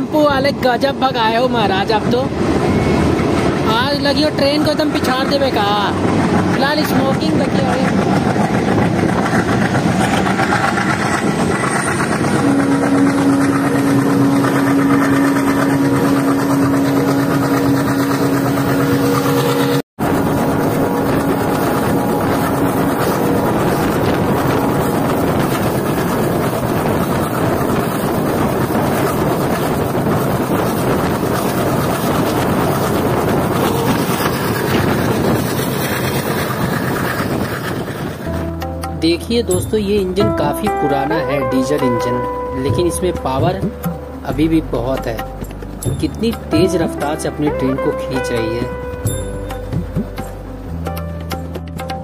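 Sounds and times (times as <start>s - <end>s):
rushing wind: 0.0s - 39.0s
diesel locomotive engine: 0.0s - 52.0s
wheels on rails: 2.4s - 38.6s
steady droning tone: 11.9s - 35.4s.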